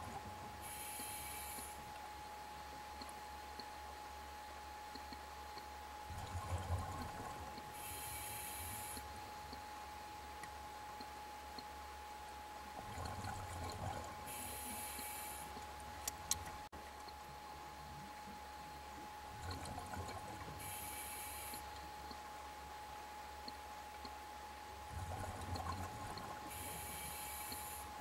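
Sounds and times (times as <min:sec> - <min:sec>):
faint steady tone: 0:00.0 - 0:28.0
diver breathing through regulator: 0:07.8 - 0:09.0.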